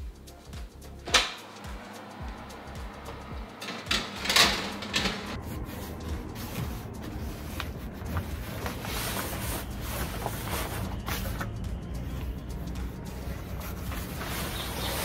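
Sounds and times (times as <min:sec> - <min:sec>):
steady background noise: 0:00.0 - 0:15.0
metal baking tray clattering: 0:03.5 - 0:05.4
fabric cover rustling: 0:04.6 - 0:15.0.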